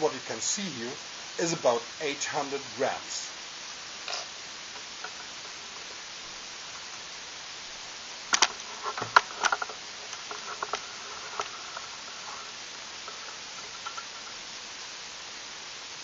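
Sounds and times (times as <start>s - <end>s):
steady hiss: 0.0s - 16.0s
sharp clicks and light knocks: 8.3s - 12.4s.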